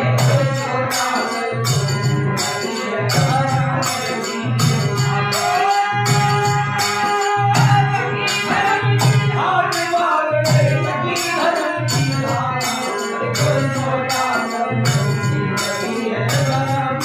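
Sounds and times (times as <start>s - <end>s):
harmonium chords: 0.0s - 17.0s
jingling hand percussion: 0.0s - 17.0s
voices singing: 0.0s - 17.0s
hand drum beating: 5.9s - 9.6s.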